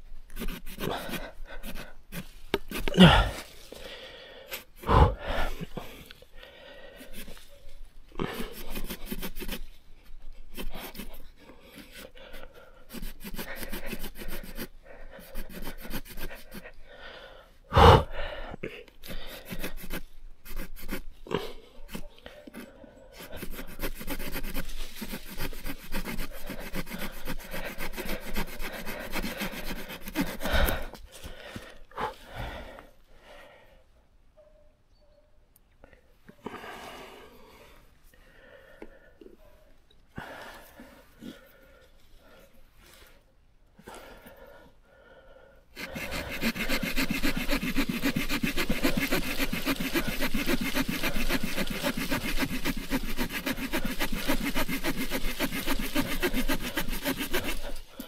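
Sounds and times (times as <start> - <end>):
small saw rasping through wood: 0.3 - 3.3, 8.2 - 9.7, 10.5 - 11.2, 11.8 - 16.8, 19.1 - 21.1, 21.9 - 30.9, 45.8 - 58.0.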